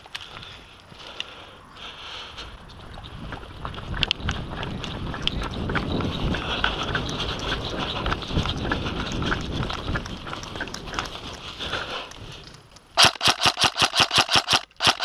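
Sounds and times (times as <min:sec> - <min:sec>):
running footsteps on dirt: 0:00.0 - 0:15.0
gear clicking and rattling: 0:02.6 - 0:15.0.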